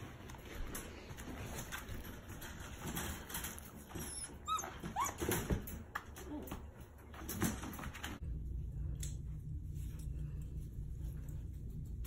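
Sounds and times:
puppy squeaking and whimpering: 3.9s - 5.6s.

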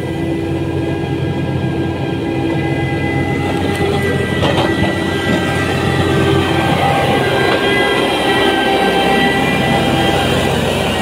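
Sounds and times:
diesel machinery engines droning: 0.0s - 11.0s.

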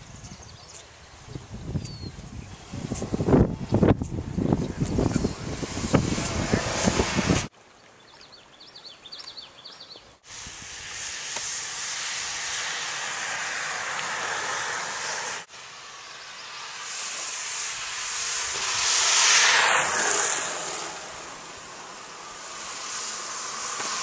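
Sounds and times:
bird chirping: 0.0s - 2.8s, 7.8s - 10.2s
steady rushing noise: 0.0s - 7.5s, 10.2s - 24.0s.

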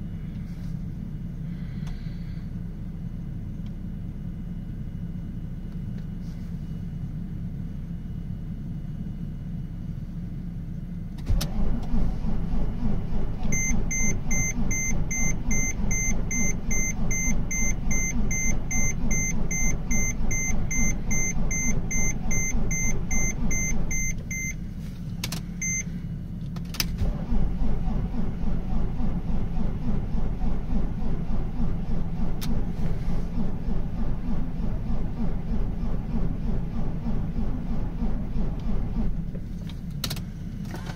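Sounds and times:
low steady hum: 0.0s - 40.9s
engine cranking by starter: 11.1s - 40.9s
dashboard warning chime beeping: 13.4s - 24.7s, 25.6s - 26.0s.

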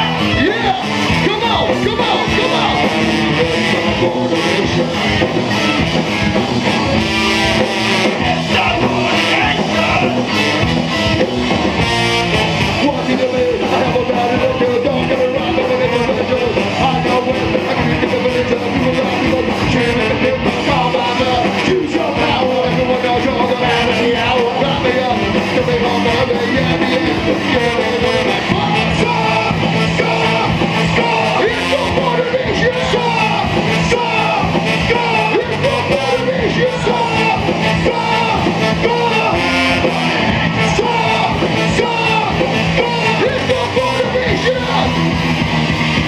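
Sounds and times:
singer vocals: 0.0s - 46.0s
ska-punk band playing live: 0.0s - 46.0s.

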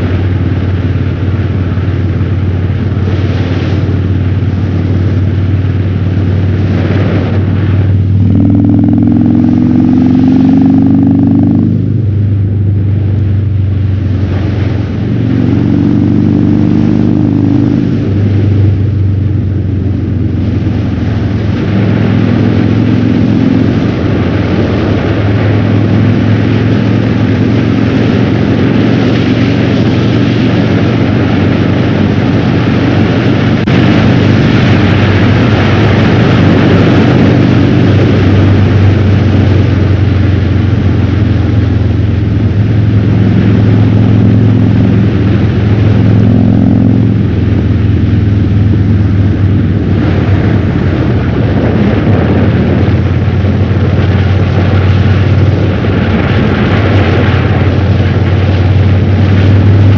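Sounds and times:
motorcycle engine running: 0.0s - 59.9s
wind noise: 0.0s - 59.9s.

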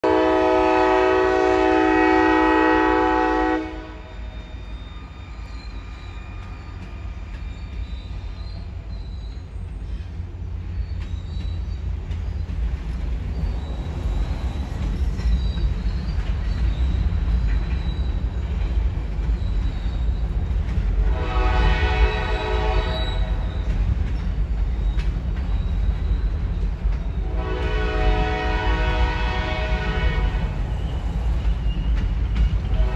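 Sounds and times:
train horn blasts: 0.0s - 4.3s, 21.0s - 23.6s, 27.2s - 30.6s, 32.7s - 32.9s.

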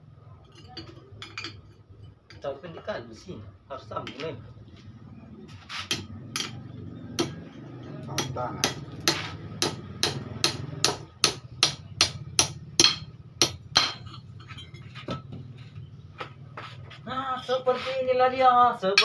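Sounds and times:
hammer striking steel on anvil: 5.8s - 7.4s, 8.1s - 14.7s.

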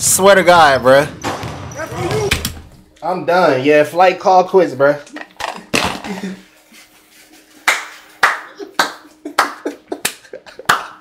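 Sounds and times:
person clapping hands: 7.6s - 11.0s.

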